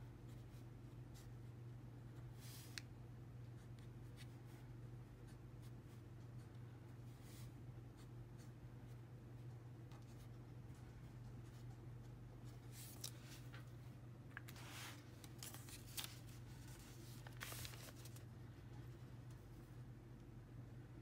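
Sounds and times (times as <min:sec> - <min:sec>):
low steady hum: 0:00.0 - 0:21.0
paper rustling: 0:12.6 - 0:13.7, 0:14.4 - 0:18.3.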